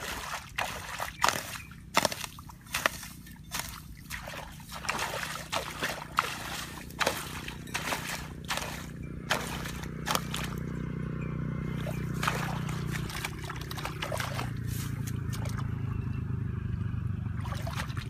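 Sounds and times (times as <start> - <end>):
hoe chopping into wet mud: 0.0 - 10.6, 12.1 - 15.6
muddy water splashing: 0.0 - 11.0, 11.6 - 16.1, 17.2 - 18.0.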